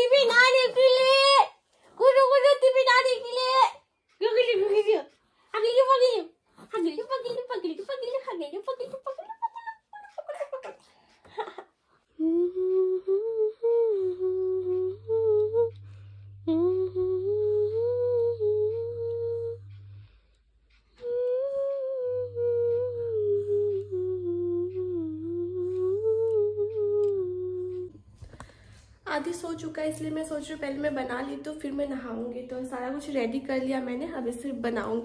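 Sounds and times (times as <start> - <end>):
woman humming a lullaby: 11.4 - 20.1, 20.8 - 28.1.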